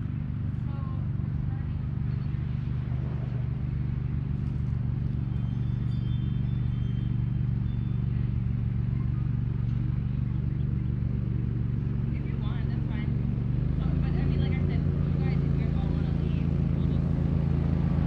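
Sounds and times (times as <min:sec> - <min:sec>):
engine droning steadily: 0:00.0 - 0:18.0.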